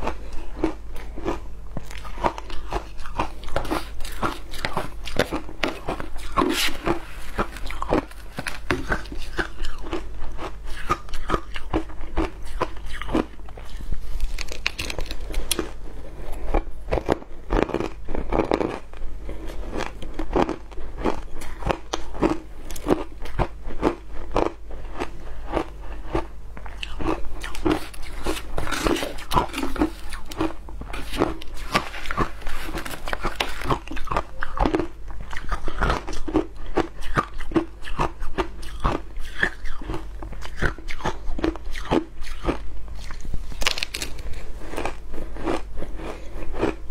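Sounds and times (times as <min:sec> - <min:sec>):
chewing crunchy ice: 0:00.0 - 0:46.9.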